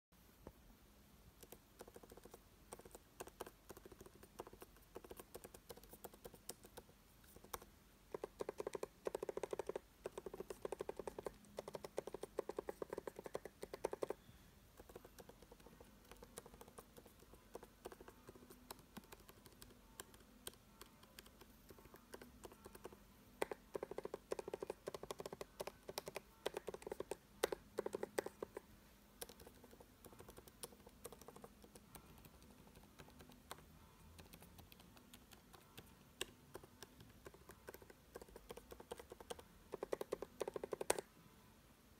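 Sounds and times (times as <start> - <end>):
laptop keyboard clicks: 34.2 - 41.1.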